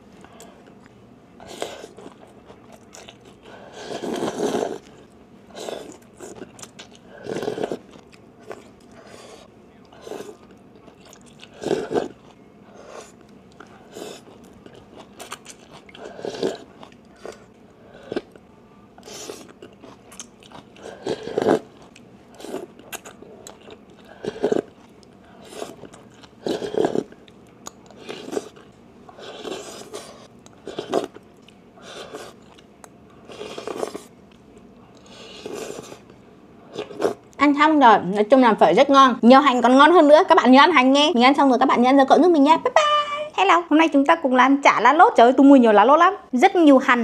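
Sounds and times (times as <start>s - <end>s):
chewing: 0.2s - 18.4s, 19.0s - 37.3s
slurping noodles: 3.5s - 6.4s, 7.1s - 7.9s, 11.4s - 13.2s, 16.0s - 17.4s, 20.8s - 21.7s, 24.0s - 24.7s, 25.4s - 25.8s, 26.4s - 27.1s, 28.0s - 31.1s, 33.3s - 34.1s, 35.0s - 36.0s, 36.7s - 37.2s.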